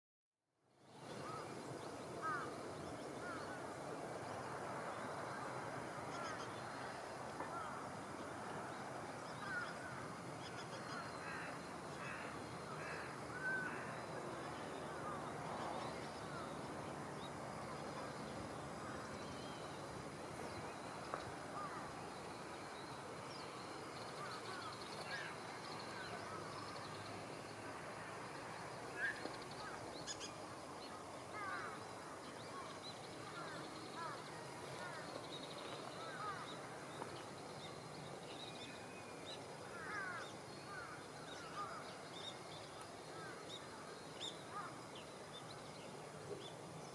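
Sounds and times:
steady background hiss: 0.6s - 46.9s
bird calls and chirps: 29.0s - 46.9s.

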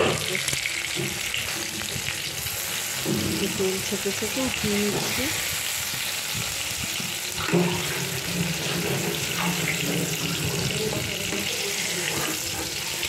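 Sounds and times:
eggplant sizzling in hot oil: 0.0s - 13.0s
spatula stirring: 7.4s - 13.0s.

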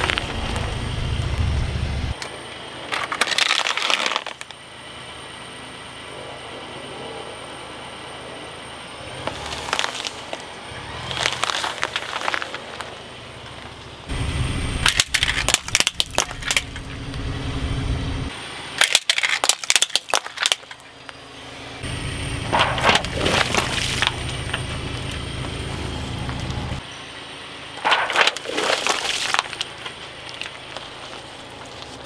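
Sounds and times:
apples crunching under tyre: 0.0s - 1.6s, 2.8s - 4.6s, 9.2s - 14.2s, 14.8s - 17.3s, 18.8s - 21.2s, 22.4s - 26.8s, 27.7s - 32.0s
plastic toy cracking under tyre: 2.9s - 4.5s, 9.3s - 10.4s, 11.1s - 12.9s, 14.8s - 16.8s, 18.8s - 21.2s, 27.8s - 32.0s.

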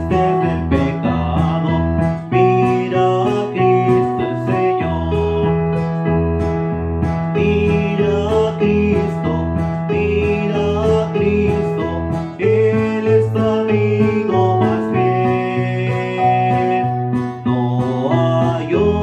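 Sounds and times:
man singing: 0.0s - 6.0s, 7.3s - 19.0s
acoustic guitar strumming: 0.0s - 19.0s
electronic keyboard chords: 0.0s - 19.0s.

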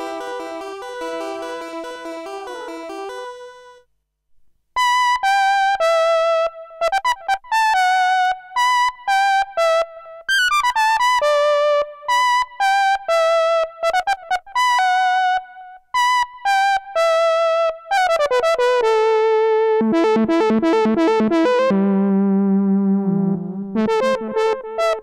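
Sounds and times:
buzzy synthesizer lead: 0.0s - 3.4s.

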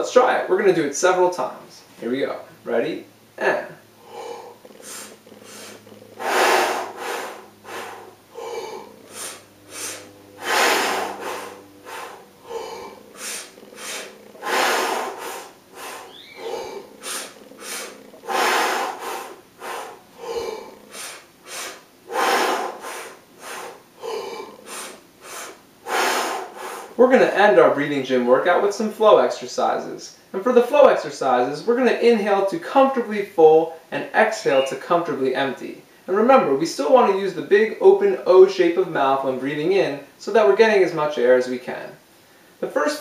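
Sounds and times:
man breathing in and out: 3.8s - 27.0s.

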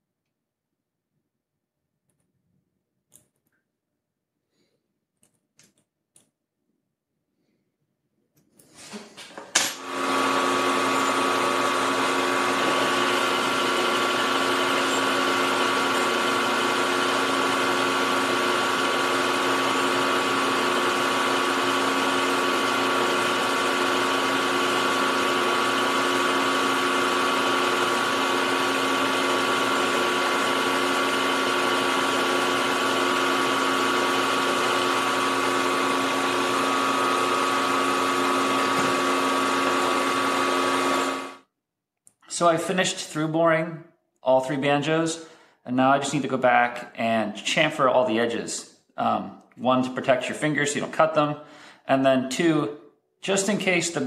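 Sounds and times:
milling machine motor whine: 9.8s - 41.4s.

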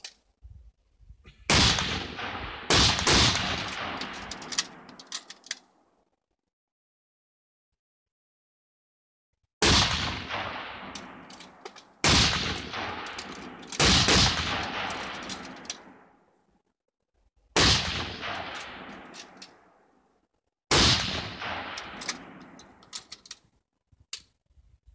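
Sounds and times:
rifle shots with echo: 1.5s - 5.0s, 9.6s - 16.2s, 17.6s - 19.8s, 20.7s - 22.8s.

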